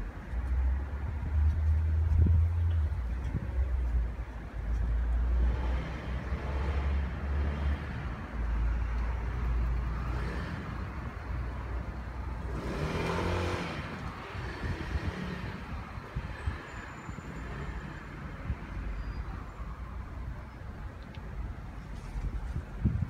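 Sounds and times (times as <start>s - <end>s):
low rumble of cars: 0.0s - 23.0s
vehicle passing close: 12.3s - 18.2s.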